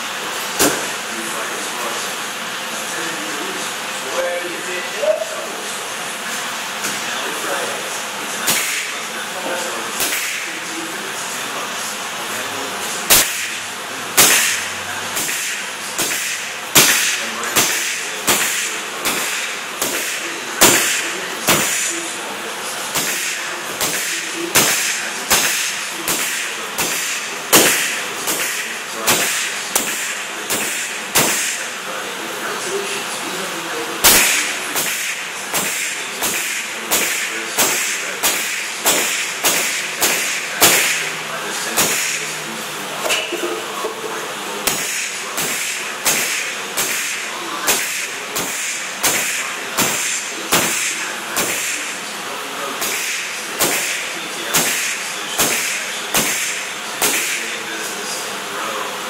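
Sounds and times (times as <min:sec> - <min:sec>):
pneumatic nail gun firing: 0:00.5 - 0:01.0, 0:08.4 - 0:09.0, 0:10.0 - 0:10.5, 0:13.1 - 0:13.6, 0:14.2 - 0:22.0, 0:22.9 - 0:31.6, 0:34.0 - 0:41.1, 0:41.7 - 0:42.2, 0:44.6 - 0:51.9, 0:52.8 - 0:57.5.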